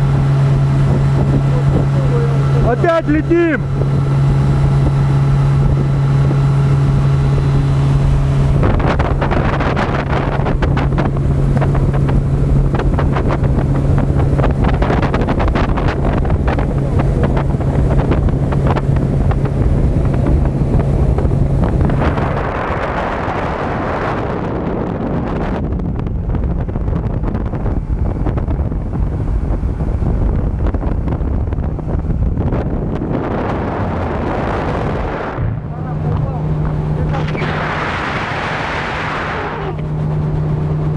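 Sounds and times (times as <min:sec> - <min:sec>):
rushing water: 0:00.0 - 0:24.2, 0:33.2 - 0:40.9
outboard motor droning: 0:00.0 - 0:40.9
wind buffeting microphone: 0:00.0 - 0:40.9.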